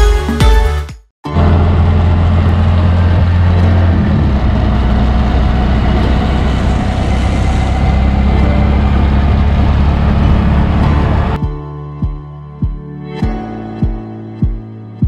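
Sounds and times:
auto-rickshaw engine running: 0:01.3 - 0:11.4.

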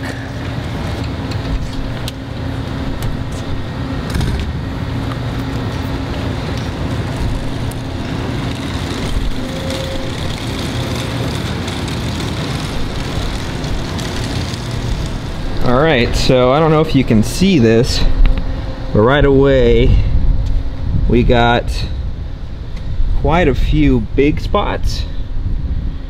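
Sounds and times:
low mechanical drone: 0:00.0 - 0:26.0.

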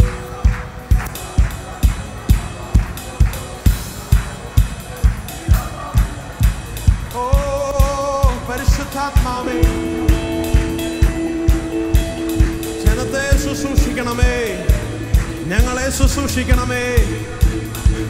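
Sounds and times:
kick drum beat: 0:00.0 - 0:18.0
worship band music: 0:00.0 - 0:18.0
sustained keyboard chord: 0:09.5 - 0:16.2.

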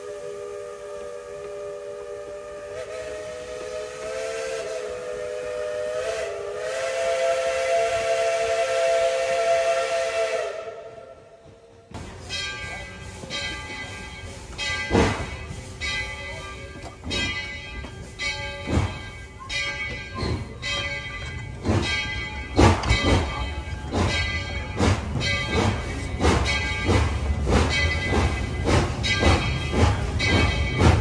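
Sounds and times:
steam locomotive chime whistle: 0:00.0 - 0:11.6, 0:12.2 - 0:31.0
clanging bell strikes: 0:12.0 - 0:31.0.

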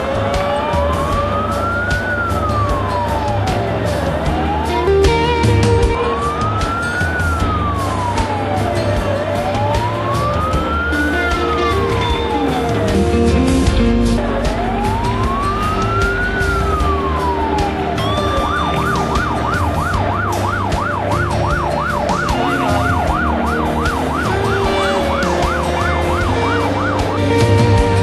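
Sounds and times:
fire engine siren: 0:00.0 - 0:28.0
truck engine running: 0:00.0 - 0:28.0.

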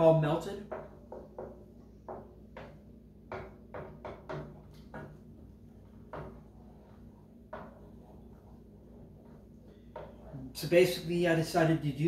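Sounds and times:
faint low hum: 0:00.0 - 0:12.0
wooden spoon scraping a skillet: 0:05.8 - 0:10.4.

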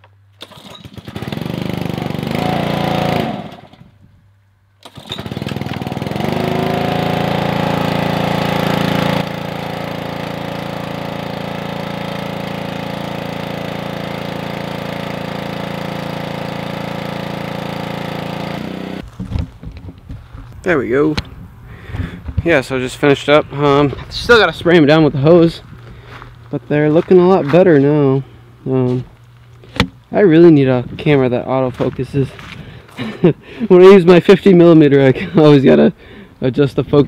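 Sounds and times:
small gasoline engine running: 0:00.4 - 0:03.9, 0:04.8 - 0:19.0.

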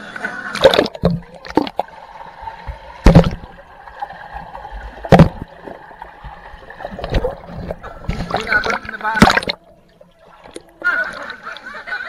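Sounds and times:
moving water: 0:00.0 - 0:12.0
water splashing: 0:00.4 - 0:12.0.

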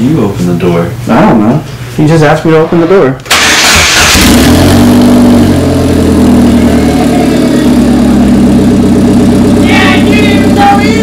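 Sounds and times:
car engine idling: 0:03.3 - 0:11.0
person speaking: 0:09.6 - 0:11.0.

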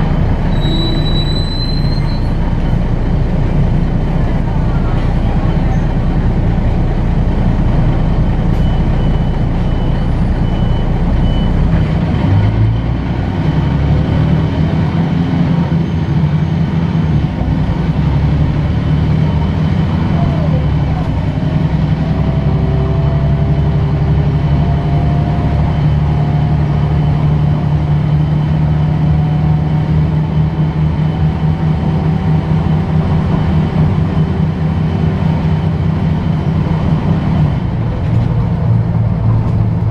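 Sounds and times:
bus engine drone: 0:00.0 - 0:39.9.

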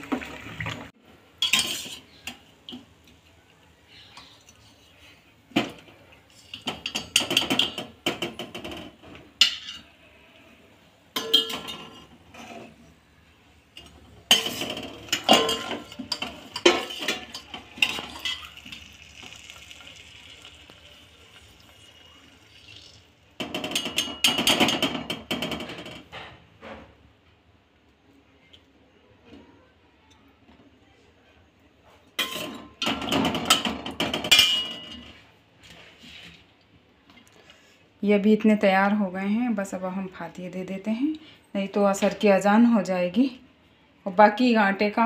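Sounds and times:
metal spoon clattering in pot: 0:01.4 - 0:02.4, 0:06.4 - 0:09.8, 0:11.2 - 0:12.6, 0:13.8 - 0:18.7, 0:23.4 - 0:26.1, 0:32.2 - 0:35.1.

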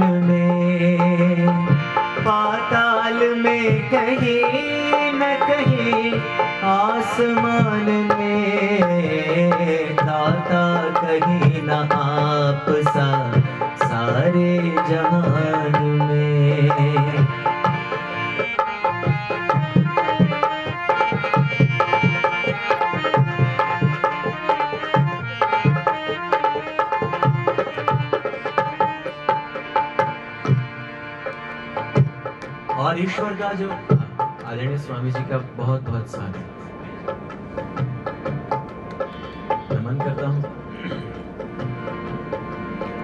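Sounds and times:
person singing: 0:00.0 - 0:17.4
harmonium chords: 0:00.0 - 0:43.0.

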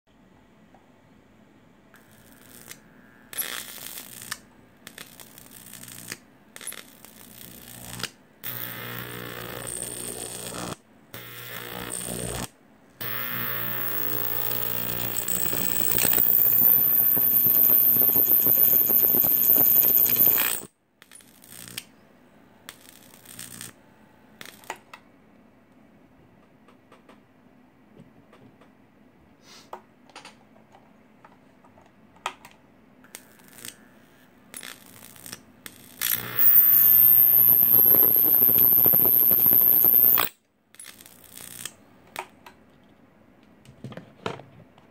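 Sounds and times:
electric arc buzzing and crackling: 0:02.0 - 0:21.9, 0:22.7 - 0:23.8, 0:34.5 - 0:40.3
high-pitched whine: 0:13.7 - 0:20.7, 0:36.2 - 0:40.3.

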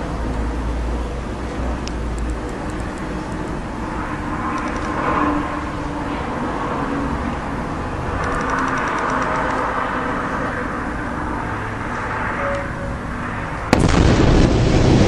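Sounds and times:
outdoor background noise: 0:00.0 - 0:15.0
explosion crack and low rumble: 0:13.7 - 0:15.0.

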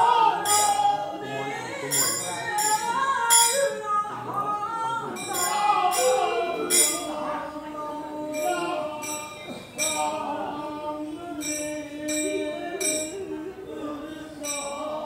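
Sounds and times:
hand cymbals clashing: 0:00.0 - 0:01.1, 0:01.8 - 0:04.0, 0:05.1 - 0:07.7, 0:08.3 - 0:10.4, 0:11.0 - 0:13.5, 0:14.3 - 0:15.0
voices chanting devotional song: 0:00.0 - 0:15.0.

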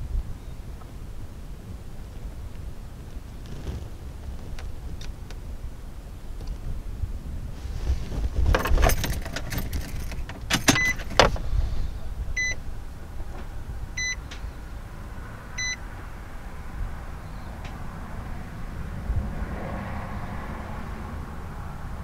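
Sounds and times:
short electronic beeps: 0:10.8 - 0:11.0, 0:12.4 - 0:12.6, 0:14.0 - 0:14.2, 0:15.6 - 0:15.8.

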